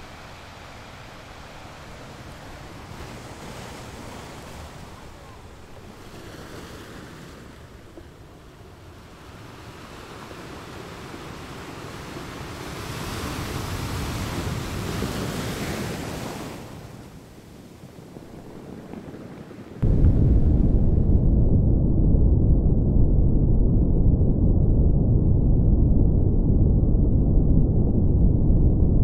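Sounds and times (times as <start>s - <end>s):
ocean surf breaking on beach: 0.0s - 19.9s.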